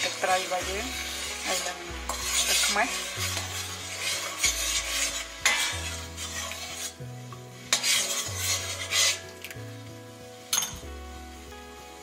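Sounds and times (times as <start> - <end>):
metal spoon stirring liquid in pot: 0.0 - 7.0, 7.6 - 9.6
spoon clinking on pot: 10.5 - 10.8.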